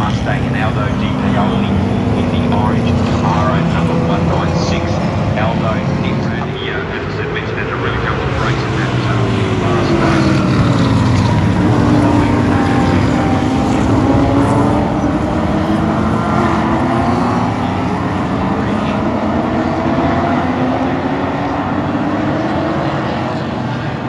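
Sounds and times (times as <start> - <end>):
racing cars passing by: 0.0 - 24.0.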